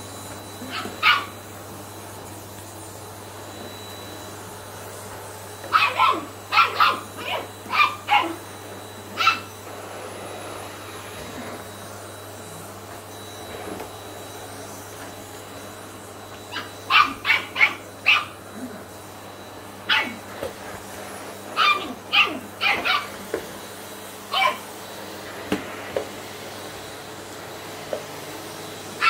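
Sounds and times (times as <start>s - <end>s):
vacuum cleaner humming: 0.0s - 29.0s
puppy barking high-pitched: 0.6s - 1.4s, 5.7s - 8.4s, 9.2s - 9.6s, 16.5s - 18.4s, 19.9s - 20.2s, 21.6s - 23.2s, 24.3s - 24.7s.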